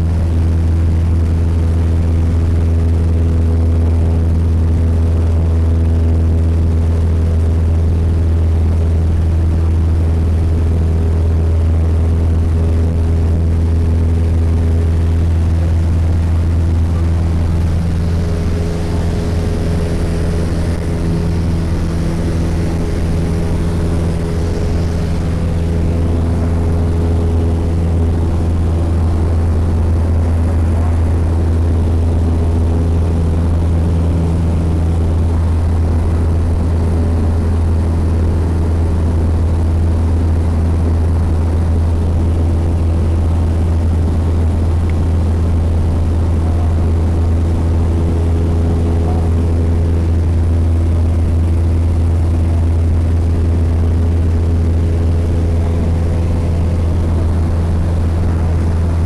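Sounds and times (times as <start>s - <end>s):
plane engine droning in cabin: 0.0s - 59.0s.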